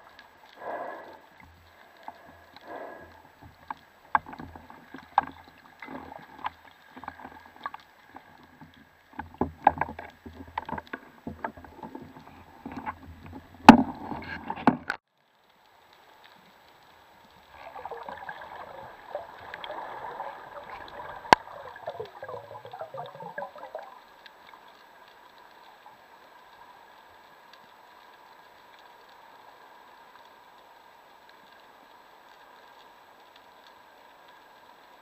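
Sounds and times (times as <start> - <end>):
muffled underwater clicks and knocks: 1.4 - 15.1, 17.3 - 25.5.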